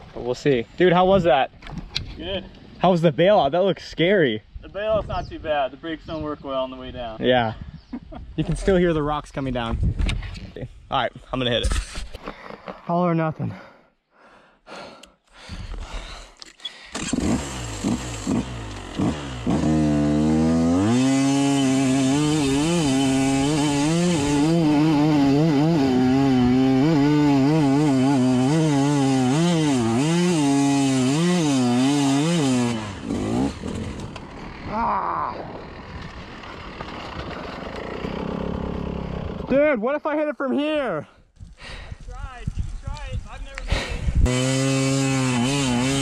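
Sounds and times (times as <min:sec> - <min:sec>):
dirt bike engine revving: 0:16.9 - 0:39.6, 0:43.8 - 0:46.0.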